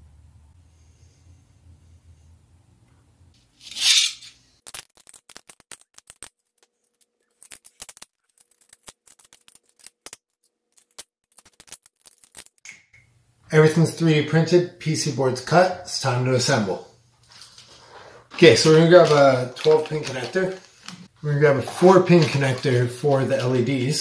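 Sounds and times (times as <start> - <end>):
plastic pieces snapping off: 4.6 - 6.4.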